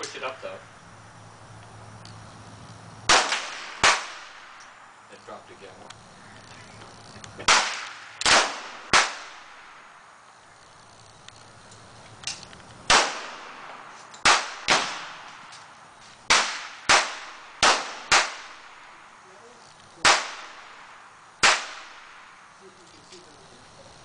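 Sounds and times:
pistol shots with echo: 0:03.1 - 0:04.6, 0:07.4 - 0:09.9, 0:12.9 - 0:15.5, 0:16.3 - 0:19.1, 0:20.0 - 0:22.4.

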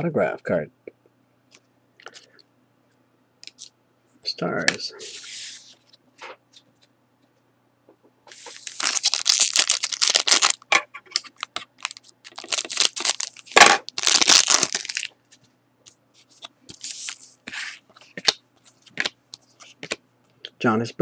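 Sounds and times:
cards rustling: 0:08.3 - 0:15.1
foil wrapper crinkling and tearing: 0:08.4 - 0:10.6, 0:11.2 - 0:15.1.

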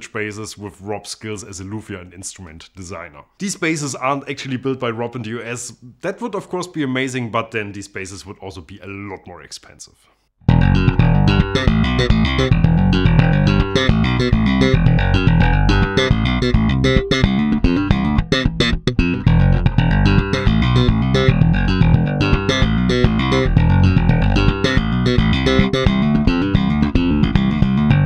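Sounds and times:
slap bass guitar: 0:10.4 - 0:28.0.

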